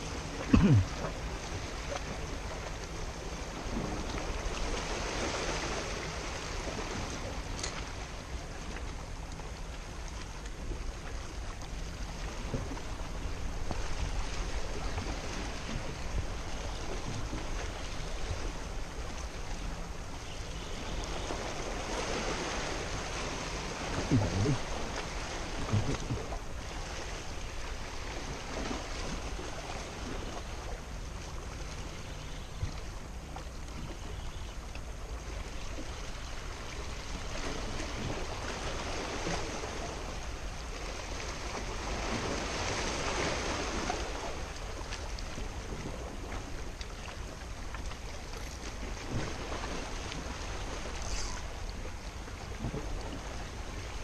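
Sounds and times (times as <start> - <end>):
wind rumble on microphone: 0.0 - 54.0
waves washing among rocks: 20.8 - 31.0, 36.5 - 47.3, 48.1 - 54.0.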